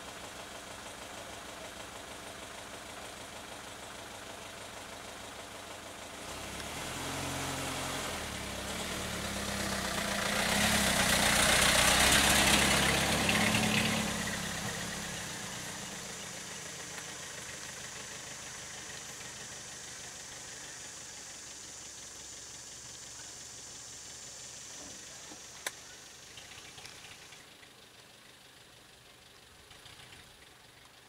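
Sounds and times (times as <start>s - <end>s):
large vehicle engine passing: 6.2s - 25.1s
tyre and road noise: 6.2s - 27.5s.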